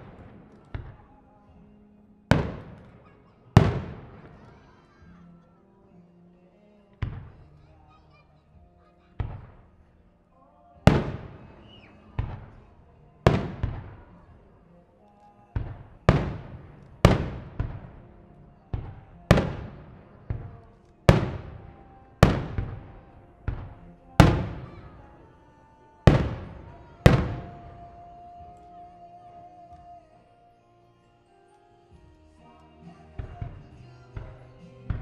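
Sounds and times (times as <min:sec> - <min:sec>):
faint music with held notes: 0:00.0 - 0:35.0
firework shells bursting: 0:10.9 - 0:12.7, 0:13.3 - 0:14.1, 0:15.6 - 0:25.3, 0:26.0 - 0:27.9.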